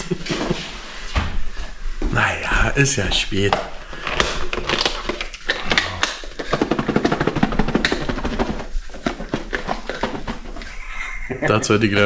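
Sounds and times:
container rattling: 2.2s - 10.9s.

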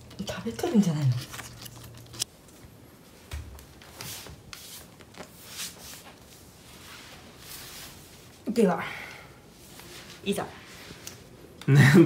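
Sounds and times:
rustling handling noise: 0.0s - 8.5s.

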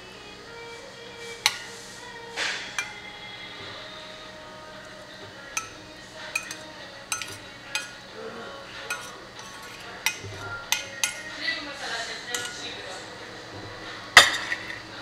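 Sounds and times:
metal spoon clinking on bowl: 1.4s - 1.8s, 2.7s - 3.0s, 5.5s - 8.0s, 8.9s - 11.4s, 12.3s - 12.7s.

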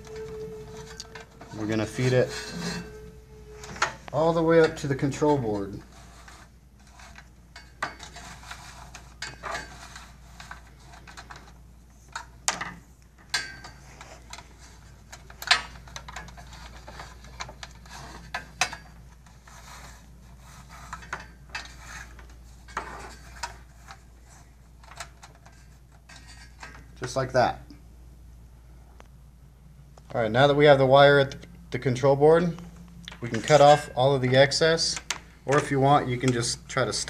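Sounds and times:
wire rubbing against metal rails: 0.0s - 12.0s, 13.4s - 26.7s.

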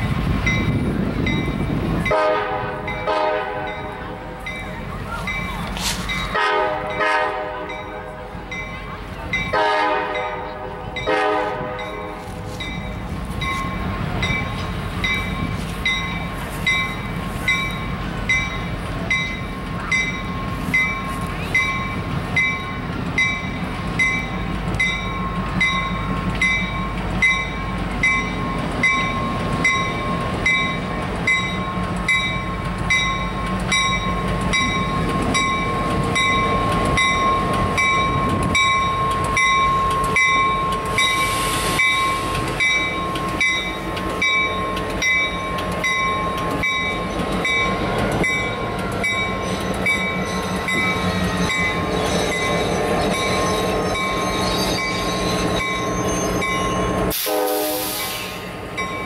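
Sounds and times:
locomotive bell ringing: 0.0s - 59.0s
locomotive horn blast: 2.0s - 3.9s, 6.3s - 8.2s, 9.5s - 12.2s, 57.1s - 58.4s.

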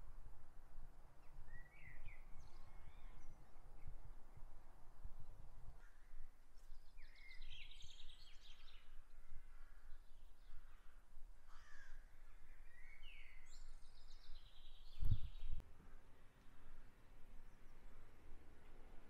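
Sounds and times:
birds singing and calling: 5.9s - 10.9s, 11.6s - 15.6s.

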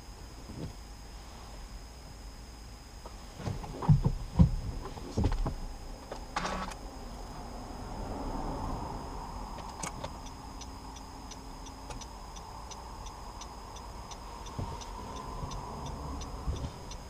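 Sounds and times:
road and tyre rumble: 0.0s - 17.0s
turn signal ticking: 8.9s - 17.0s
click: 9.6s - 17.0s.

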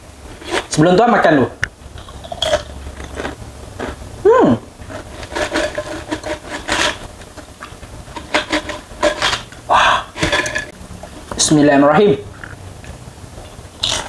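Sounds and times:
crisps rattling into a steel tray: 4.9s - 7.1s, 8.1s - 9.5s.

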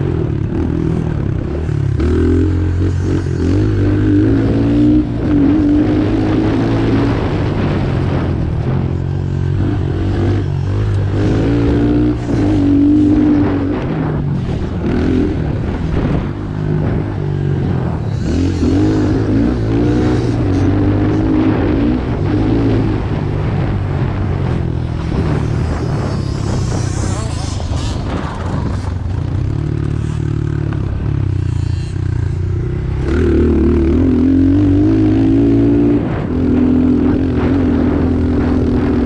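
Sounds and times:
dirt bike engine revving: 0.0s - 39.0s.

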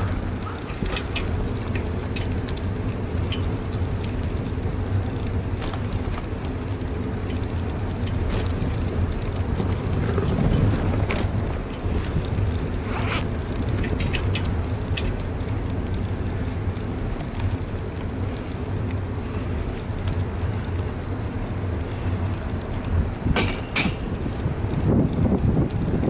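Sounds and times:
bicycle road rumble: 0.0s - 26.0s
wind rushing over microphone: 0.0s - 26.0s.

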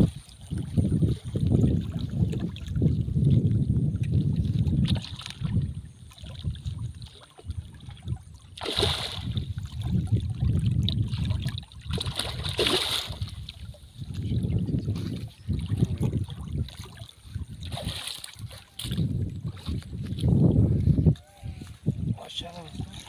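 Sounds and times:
wind rumble on microphone: 0.0s - 23.0s
fish splashing in water: 4.5s - 13.8s, 15.4s - 19.8s.

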